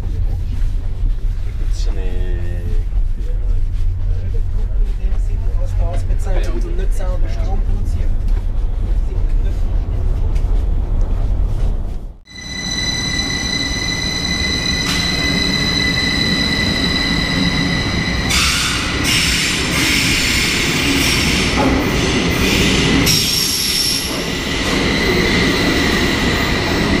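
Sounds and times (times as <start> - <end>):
train low rumble: 0.0 - 27.0
train high-pitched squeal: 12.3 - 21.4, 22.4 - 27.0
train rushing hiss: 14.3 - 26.8.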